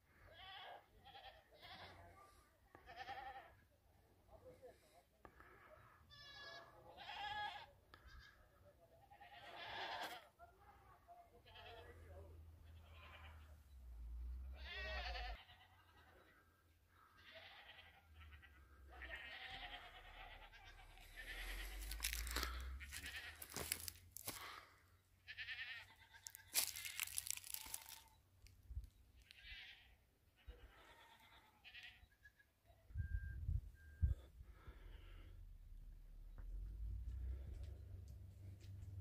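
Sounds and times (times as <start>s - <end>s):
goats bleating: 0.2s - 2.1s, 2.7s - 3.6s, 6.0s - 10.3s, 11.4s - 13.6s, 14.5s - 16.4s, 17.1s - 24.6s, 25.3s - 28.2s, 29.2s - 32.4s
footsteps on stony ground: 21.0s - 24.7s, 26.1s - 28.9s.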